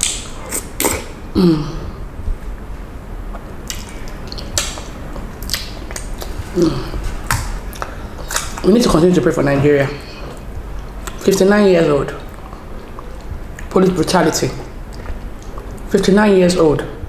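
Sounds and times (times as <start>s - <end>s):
wet eating mouth sounds: 0.0s - 2.0s, 3.2s - 11.4s, 12.1s - 13.8s.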